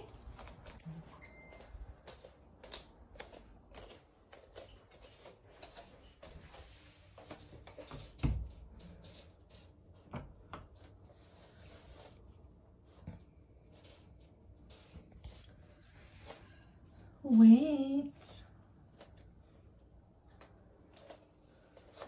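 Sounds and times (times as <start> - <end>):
light footsteps: 0.0 - 8.1.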